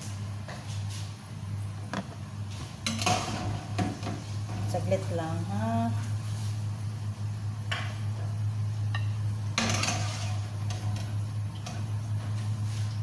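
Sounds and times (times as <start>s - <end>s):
steady low hum: 0.0s - 13.0s
dishes and utensils clinking: 8.9s - 11.1s.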